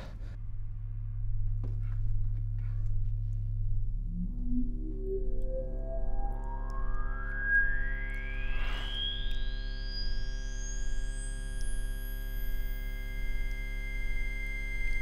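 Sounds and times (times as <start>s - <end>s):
low hum: 0.0s - 15.0s
synthesizer drone: 0.0s - 15.0s
pure tone gliding upward: 3.6s - 15.0s.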